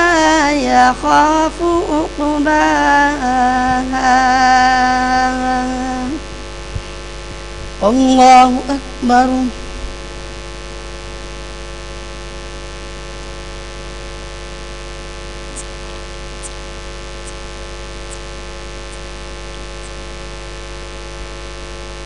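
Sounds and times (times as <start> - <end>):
electrical mains hum and hiss: 0.0 - 22.0
faint high ticks: 17.2 - 18.3.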